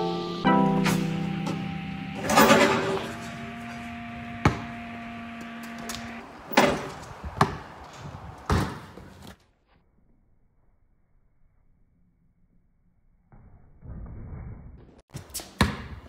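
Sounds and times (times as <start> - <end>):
basketball bouncing: 4.3 - 4.9, 5.7 - 9.2, 15.3 - 16.0.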